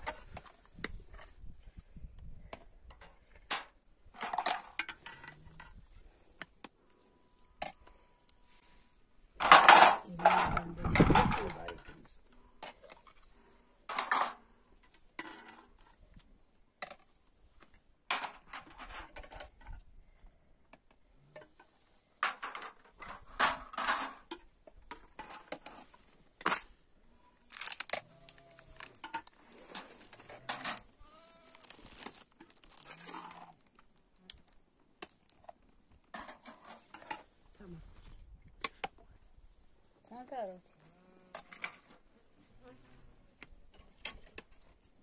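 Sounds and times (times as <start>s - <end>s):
crinkling and tearing: 27.4s - 34.6s.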